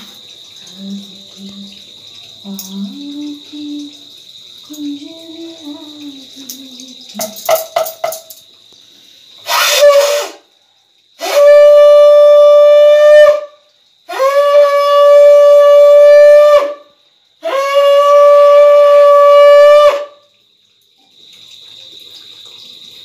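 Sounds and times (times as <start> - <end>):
conch shell blasts: 9.4 - 10.4, 11.2 - 13.5, 14.1 - 16.8, 17.4 - 20.1
short puff into conch: 9.4 - 10.4.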